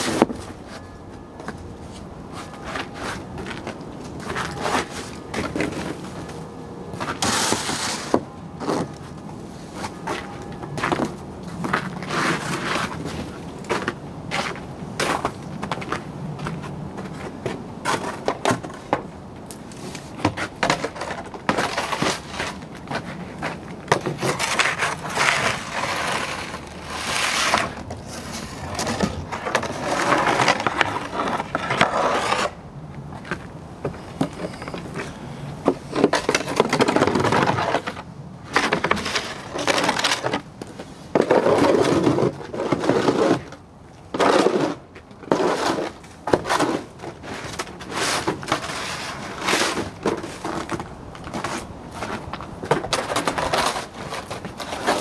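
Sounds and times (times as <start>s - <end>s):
snow scraping and crunching: 7.0s - 8.9s, 10.9s - 15.3s, 21.6s - 32.5s, 44.2s - 50.7s.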